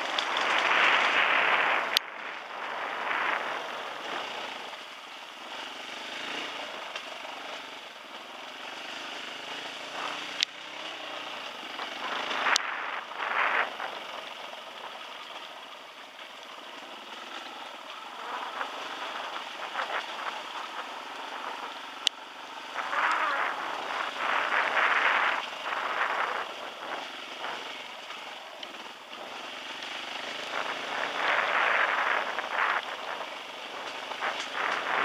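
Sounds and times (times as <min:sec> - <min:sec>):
wind rushing: 0:00.0 - 0:04.2
dirt bike engine running: 0:00.0 - 0:35.0
tyre noise on wet dirt: 0:00.0 - 0:35.0.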